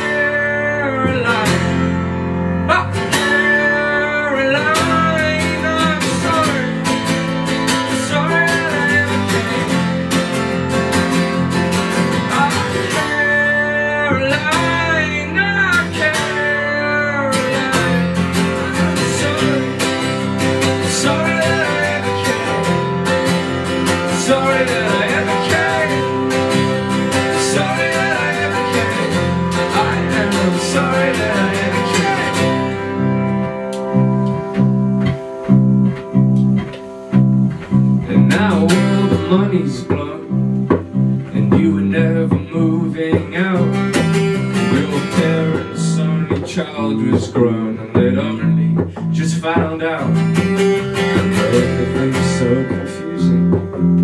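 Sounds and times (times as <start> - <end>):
acoustic guitars strumming chords: 0.0 - 54.0
wavering lead melody: 1.6 - 43.1.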